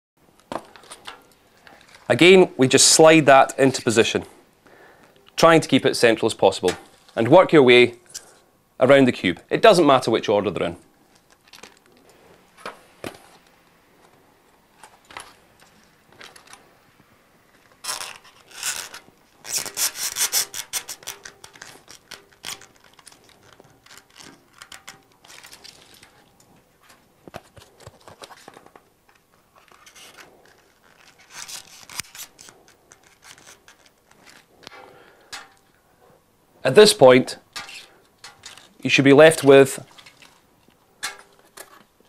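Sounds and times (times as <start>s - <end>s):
foam board scraping and rubbing: 17.8s - 23.1s, 29.6s - 34.5s.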